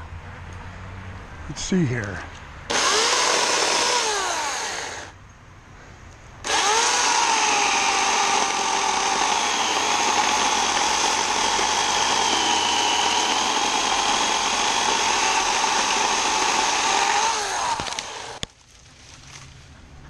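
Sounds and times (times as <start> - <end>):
electric chainsaw cutting branch: 2.7 - 5.2, 6.4 - 18.5.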